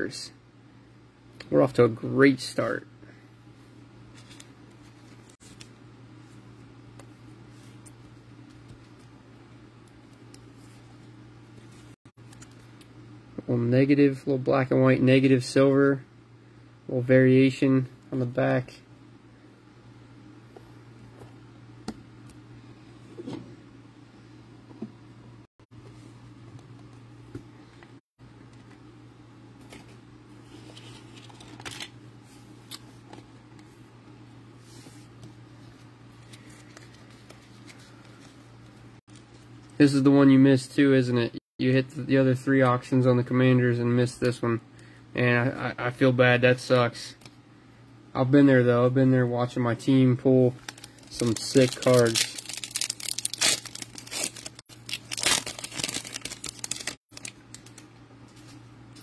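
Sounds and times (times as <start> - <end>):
steady low hum: 0.0 - 59.0
foil wrapper tearing and crinkling: 50.6 - 57.8
trading cards rustling and clicking: 50.6 - 58.6.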